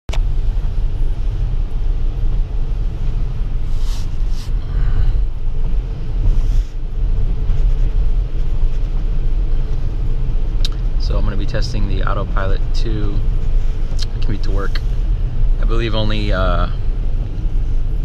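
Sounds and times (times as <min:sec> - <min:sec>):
road rumble inside car: 0:00.1 - 0:18.0
brief swishes: 0:03.7 - 0:04.6.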